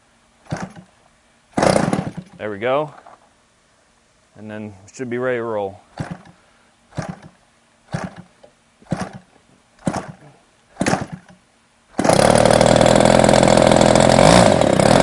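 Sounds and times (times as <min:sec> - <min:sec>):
engine pops during hand-start: 0:00.5 - 0:00.9, 0:01.6 - 0:02.4, 0:06.0 - 0:06.4, 0:07.0 - 0:11.4
model plane engine running: 0:12.0 - 0:15.0.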